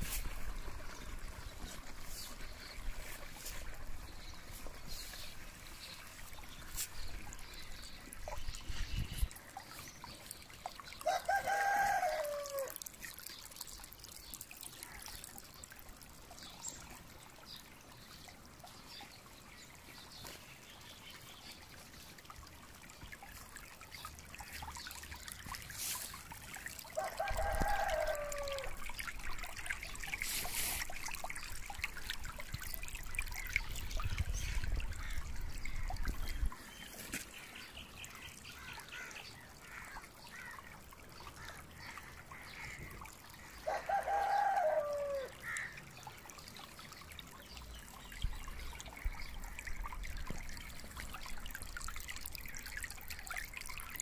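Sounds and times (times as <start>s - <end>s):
stream trickling over stones: 0.0s - 54.0s
rooster crowing: 11.1s - 12.8s, 27.0s - 28.7s, 43.7s - 45.3s.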